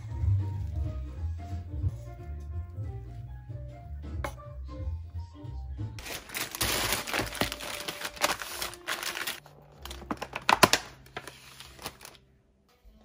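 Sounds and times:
plastic packaging crinkling: 6.0s - 12.2s.

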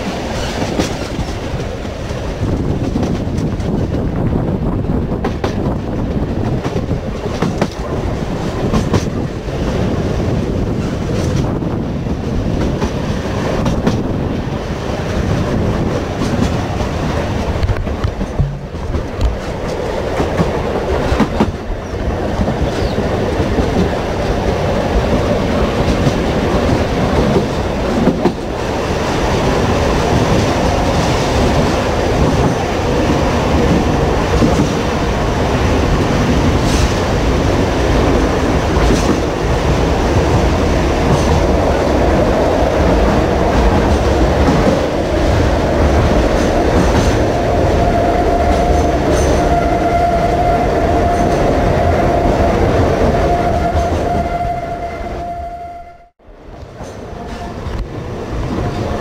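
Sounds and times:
train rumbling on rails: 0.0s - 59.0s.

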